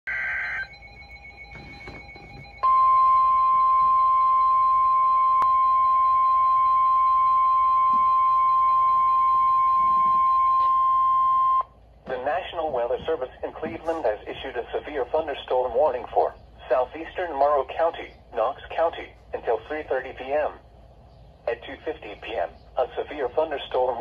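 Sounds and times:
steady warning alarm tone: 0:00.0 - 0:14.2.

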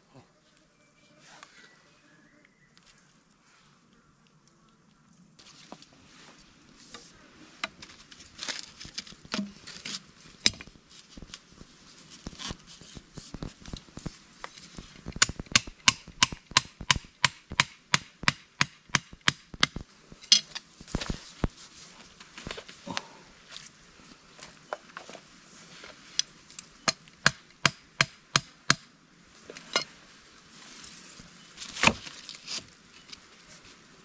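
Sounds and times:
stake being hammered into ground: 0:15.1 - 0:20.4, 0:26.9 - 0:28.9.

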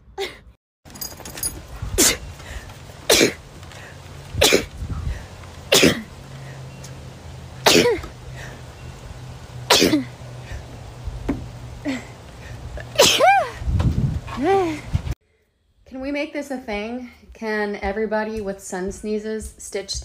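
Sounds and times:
woman sneezing: 0:13.0 - 0:13.6.

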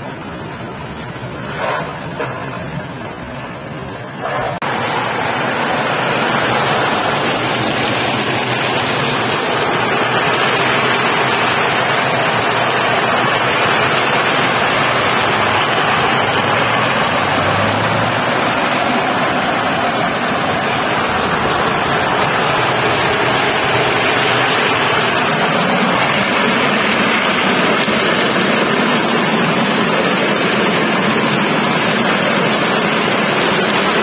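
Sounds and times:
walnut hulling machine churning: 0:00.0 - 0:34.0.

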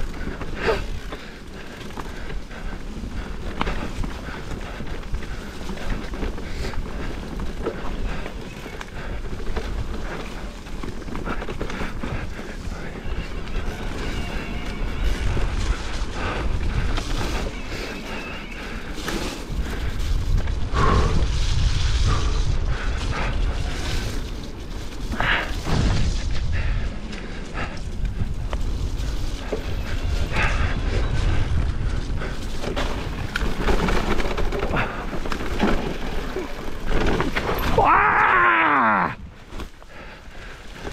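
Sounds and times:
mountain bike rumbling downhill: 0:00.0 - 0:40.9
bike knocks and rattles: 0:23.9 - 0:38.3.

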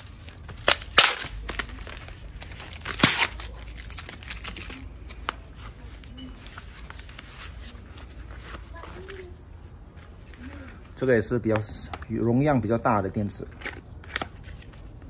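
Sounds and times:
foam wrap ripping: 0:00.0 - 0:04.9
foam wrap crinkling: 0:00.0 - 0:11.6.

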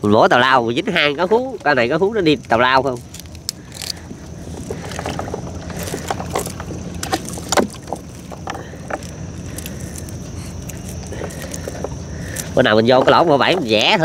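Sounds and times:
boat engine humming: 0:00.0 - 0:14.0.

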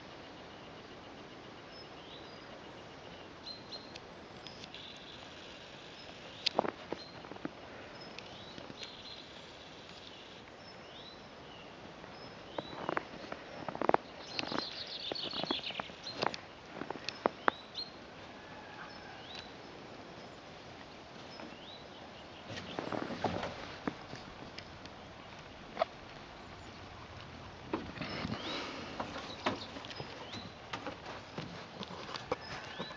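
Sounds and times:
bird chirping: 0:00.4 - 0:20.4, 0:27.8 - 0:30.8
clicks and rustles in snow and twigs: 0:06.0 - 0:10.2, 0:12.5 - 0:17.6.

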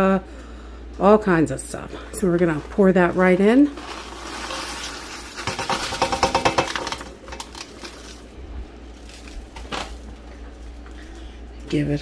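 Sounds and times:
dry pasta pouring into pot: 0:03.7 - 0:08.4
pouch crinkling: 0:07.3 - 0:11.6.

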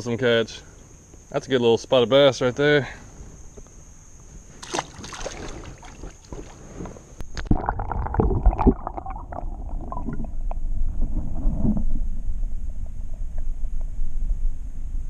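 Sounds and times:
water splashing and dripping: 0:04.6 - 0:06.6
muffled underwater rumble and gurgle: 0:05.4 - 0:14.6.

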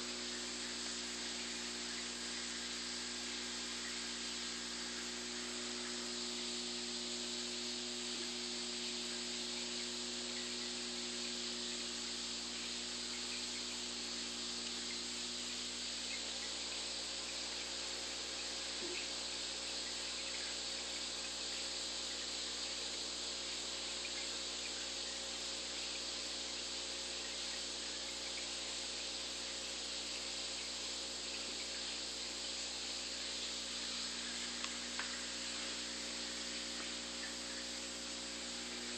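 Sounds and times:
aquarium bubbles hissing: 0:00.0 - 0:38.9
faint low equipment hum: 0:00.0 - 0:38.9.

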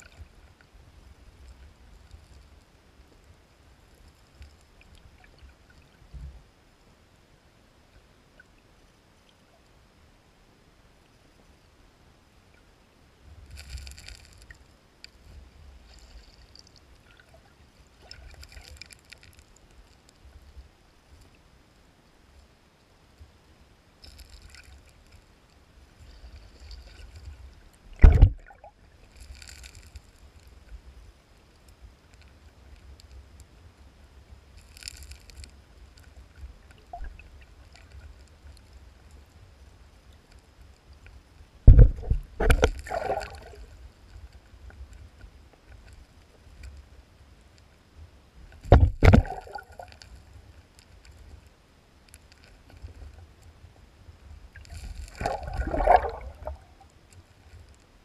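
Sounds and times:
muffled underwater stream rumble: 0:26.1 - 0:29.0, 0:41.6 - 0:44.0, 0:54.4 - 0:56.9
fish knocking against camera: 0:28.0 - 0:28.4, 0:41.7 - 0:43.1, 0:48.6 - 0:49.4.

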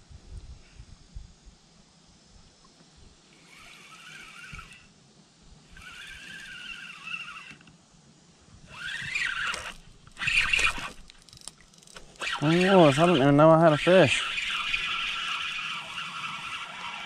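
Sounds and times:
fishing reel gears whining: 0:03.4 - 0:04.9, 0:05.7 - 0:07.7, 0:08.6 - 0:17.0.

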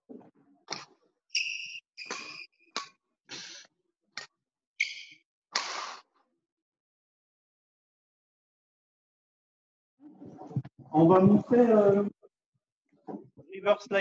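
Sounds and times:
shoes squeaking on hall floor: 0:00.7 - 0:03.6, 0:04.8 - 0:05.2
racket hitting shuttlecock: 0:02.0 - 0:03.0.

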